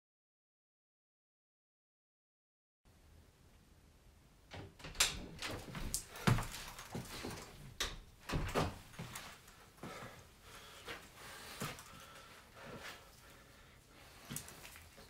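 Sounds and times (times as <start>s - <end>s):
door latch clicks and knocks: 4.5s - 5.8s.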